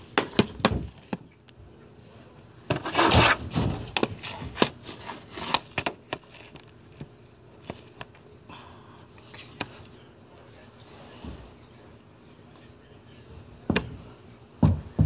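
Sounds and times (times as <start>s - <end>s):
rubbing and scraping: 2.7s - 6.7s.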